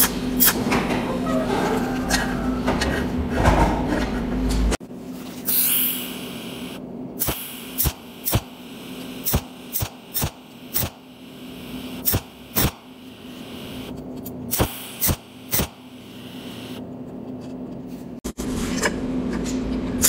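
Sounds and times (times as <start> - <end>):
low electrical hum: 0.0 - 20.0
welder spot pulse snaps: 7.2 - 13.9, 14.5 - 16.8.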